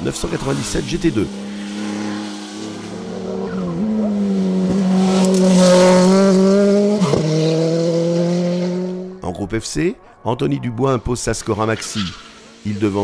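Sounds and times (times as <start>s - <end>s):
race car engine at high revs: 0.0s - 9.2s.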